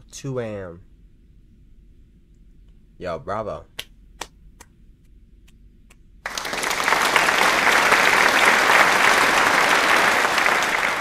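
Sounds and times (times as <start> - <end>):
applause: 6.3 - 11.0.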